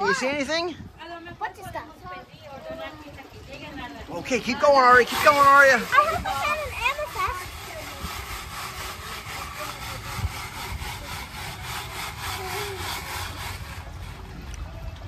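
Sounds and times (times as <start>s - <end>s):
gravel scraping through sifting screen: 4.4s - 14.4s.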